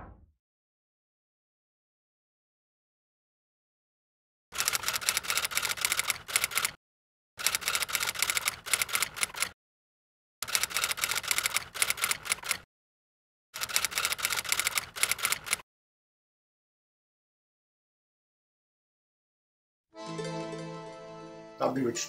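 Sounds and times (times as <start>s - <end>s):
typewriter keys clacking: 13.6s - 15.6s.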